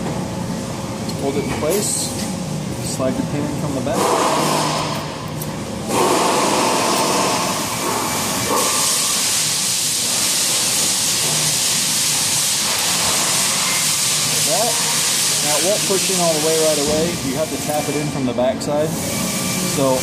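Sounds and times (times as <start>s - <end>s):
loud steady hiss: 5.9s - 20.0s.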